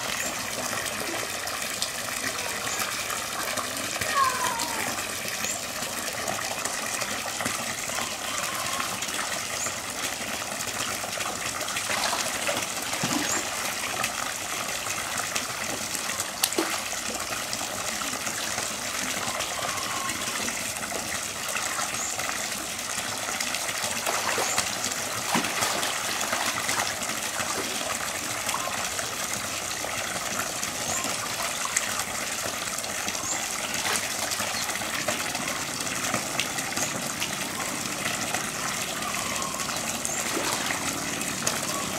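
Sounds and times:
otters splashing: 0.0 - 17.5, 21.6 - 29.5, 38.2 - 41.9
churning water rushing: 0.0 - 41.9.

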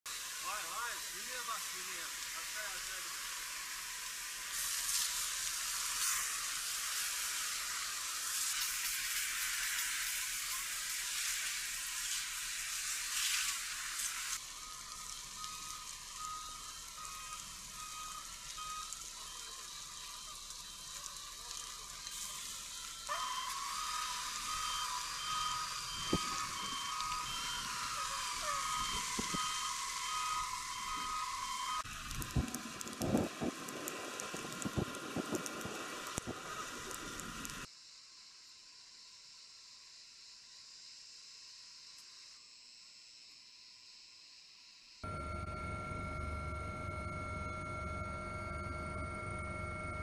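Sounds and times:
fire crackling and hissing: 0.1 - 50.0
electronic beep: 24.5 - 31.8, 45.0 - 50.0.

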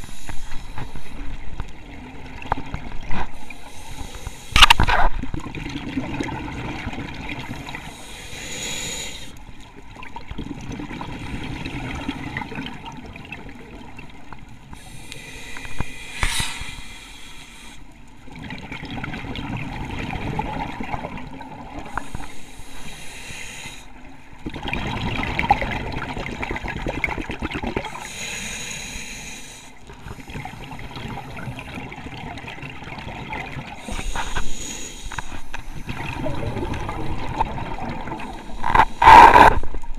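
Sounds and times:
regulator inhale hiss: 0.0 - 1.4, 3.3 - 4.9, 7.8 - 9.4, 14.8 - 18.0, 21.9 - 24.0, 27.9 - 30.7, 33.8 - 35.9
exhaled air bubbling: 23.8 - 28.1, 29.9 - 39.9.

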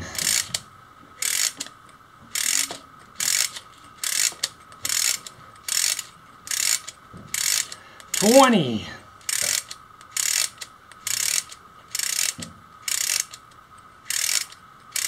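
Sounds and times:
plastic winding mechanism clicking: 0.2 - 0.6, 1.2 - 8.4, 9.2 - 15.0.

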